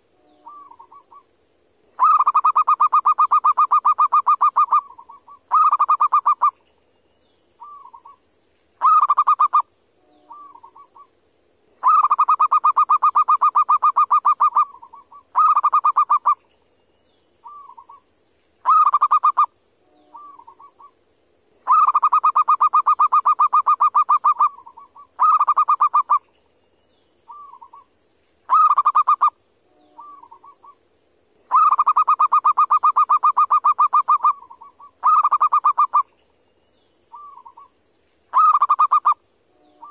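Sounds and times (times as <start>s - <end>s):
steady high-pitched hiss: 0.0s - 39.9s
dove cooing and trilling: 0.4s - 1.2s, 2.0s - 6.5s, 7.6s - 8.2s, 8.8s - 9.6s, 10.3s - 11.1s, 11.8s - 16.4s, 17.4s - 18.0s, 18.6s - 19.5s, 20.1s - 20.9s, 21.7s - 26.2s, 27.3s - 27.9s, 28.5s - 29.3s, 29.9s - 30.8s, 31.5s - 36.0s, 37.1s - 37.7s, 38.3s - 39.9s.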